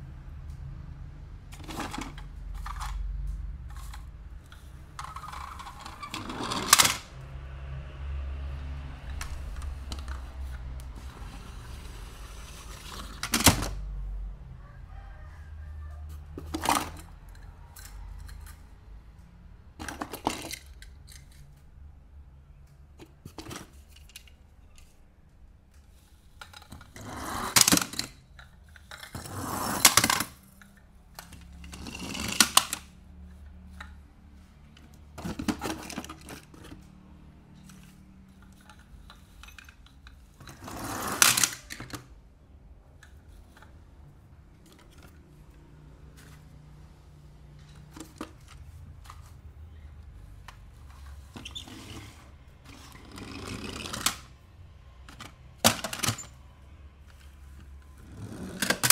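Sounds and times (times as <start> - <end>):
toy cars clattering in a box: 1.5 - 7.1, 19.8 - 21.6, 26.1 - 32.9, 35.1 - 36.9, 37.6 - 42.1, 50.9 - 54.4, 55.1 - 56.4, 57.9 - 58.9.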